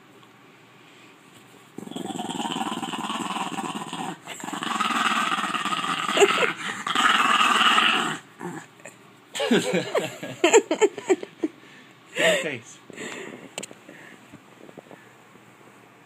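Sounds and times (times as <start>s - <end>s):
dog growling and grumbling: 1.8s - 9.0s.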